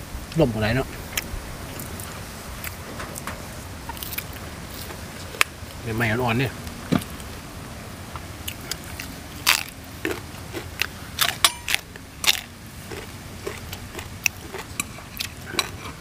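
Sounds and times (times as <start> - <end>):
people chewing: 1.1 - 5.5, 8.2 - 16.0
crunching bites of raw vegetables: 8.4 - 16.0.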